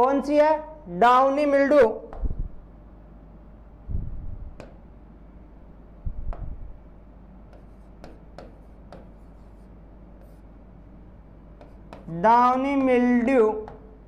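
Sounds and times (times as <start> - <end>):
steady low hum: 0.0 - 14.0
pen tapping on display board: 4.6 - 4.9, 7.5 - 9.5, 11.6 - 13.0, 13.6 - 13.9.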